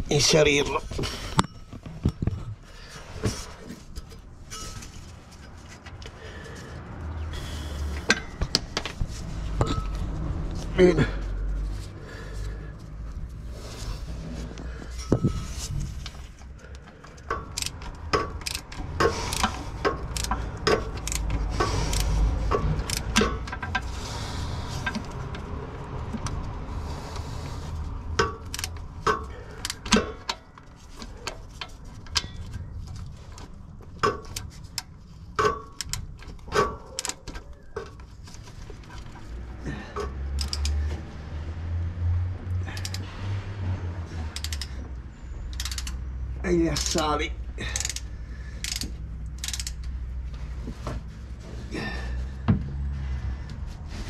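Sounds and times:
low rumbling: 0:00.0 - 0:30.2
metal tools clinking: 0:03.8 - 0:05.7, 0:09.5 - 0:10.1, 0:14.7 - 0:16.5, 0:28.2 - 0:33.2, 0:45.4 - 0:50.0.

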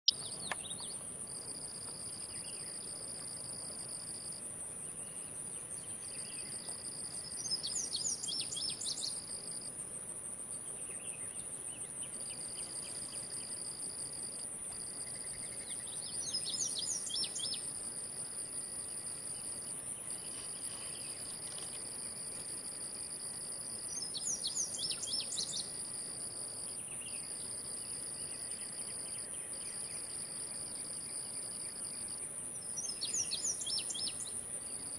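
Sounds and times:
bird chirping: 0:00.0 - 0:01.0, 0:04.8 - 0:09.3, 0:15.0 - 0:17.7, 0:23.8 - 0:25.7, 0:32.7 - 0:34.4
lower insect trill: 0:00.0 - 0:34.9
insects droning high: 0:00.1 - 0:34.9.

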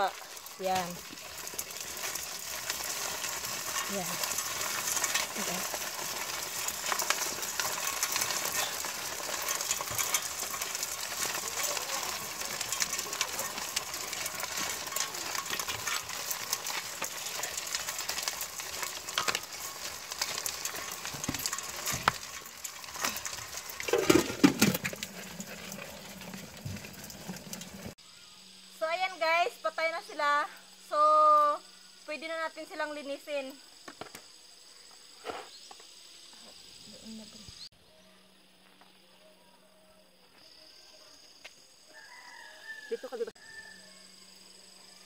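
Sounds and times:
salt being sprinkled: 0:00.0 - 0:28.0
crabs crackling and scrabbling in pot: 0:00.0 - 0:38.5, 0:40.4 - 0:45.0.

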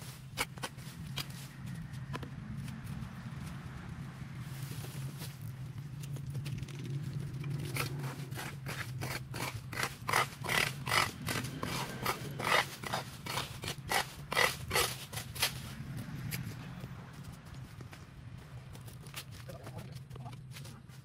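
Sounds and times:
hand tool scraping: 0:07.6 - 0:15.7.

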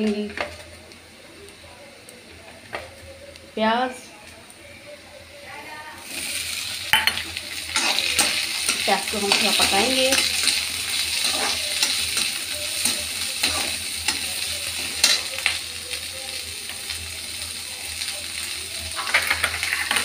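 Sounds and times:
onions sizzling in hot oil: 0:00.0 - 0:20.0
metal spatula scraping a pan: 0:07.0 - 0:15.5, 0:19.0 - 0:20.0.

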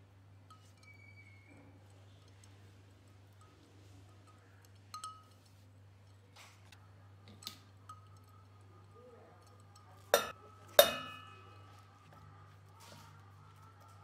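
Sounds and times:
knife clinking on steel jar: 0:10.2 - 0:11.4.

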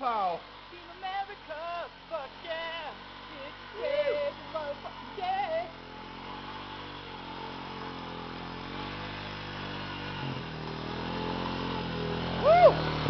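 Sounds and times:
atv engine running: 0:00.0 - 0:13.0
person shouting: 0:03.8 - 0:04.4, 0:12.4 - 0:12.8.

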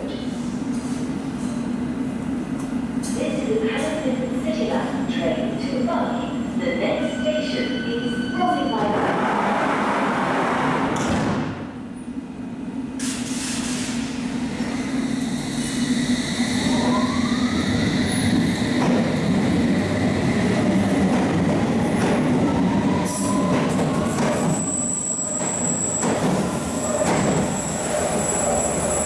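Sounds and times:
low rumble of train: 0:00.0 - 0:29.0.

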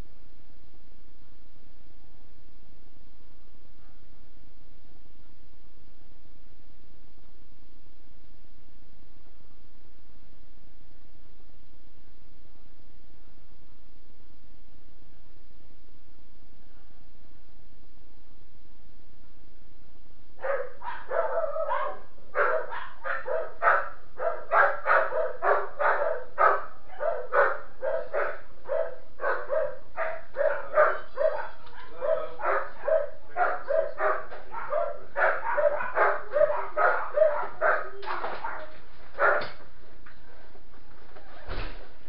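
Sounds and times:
dog barking: 0:20.4 - 0:39.6.

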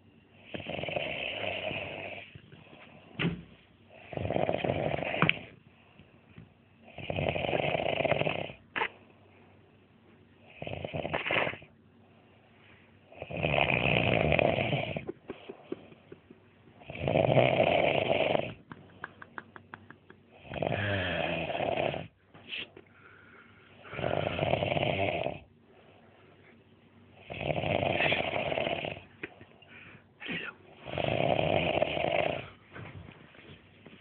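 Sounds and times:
man snoring: 0:00.5 - 0:02.3, 0:03.9 - 0:05.5, 0:06.9 - 0:08.6, 0:10.5 - 0:11.7, 0:13.1 - 0:15.1, 0:16.8 - 0:18.7, 0:20.4 - 0:22.1, 0:23.8 - 0:25.5, 0:27.2 - 0:29.1, 0:30.8 - 0:32.6.

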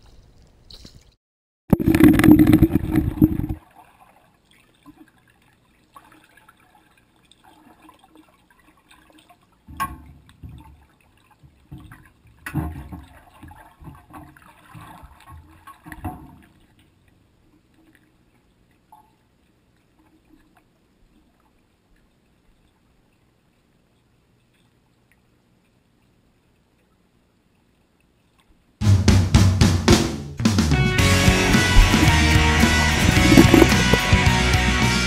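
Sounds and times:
muffled underwater splashing: 0:01.7 - 0:17.3, 0:31.4 - 0:34.3.

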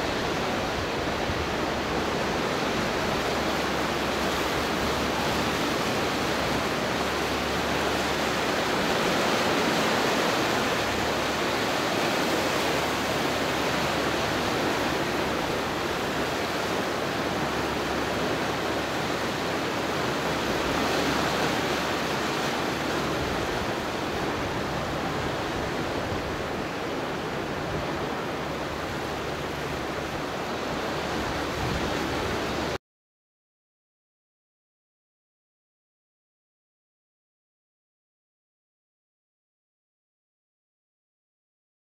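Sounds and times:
ocean surf rushing between rocks: 0:00.0 - 0:32.8.

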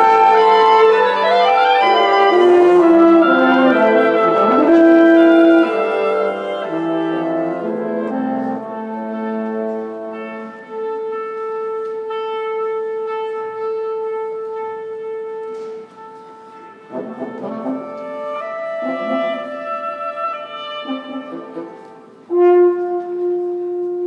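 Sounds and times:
woodwind quintet playing chords: 0:00.0 - 0:24.0.

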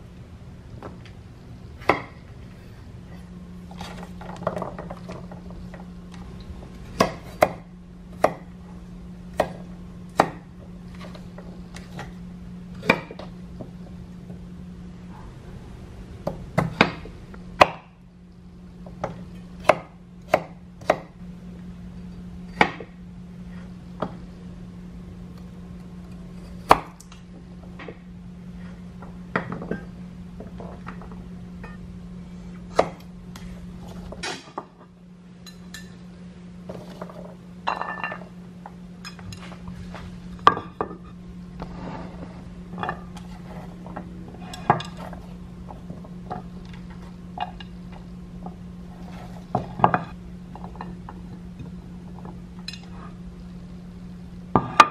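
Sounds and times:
steady low hum: 0:00.0 - 0:54.9
knife chopping on wooden board: 0:07.0 - 0:07.6, 0:09.3 - 0:10.5, 0:32.7 - 0:33.0.

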